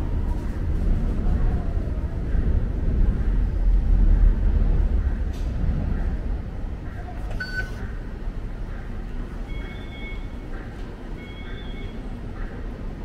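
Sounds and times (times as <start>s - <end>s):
low station rumble: 0.0s - 13.0s
short electronic beep: 7.3s - 7.8s.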